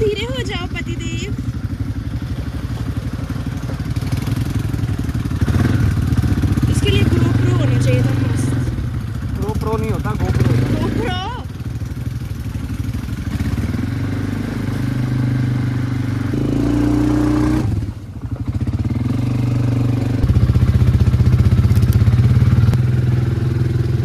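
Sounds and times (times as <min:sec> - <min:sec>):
quad bike engine running: 0:00.0 - 0:24.0.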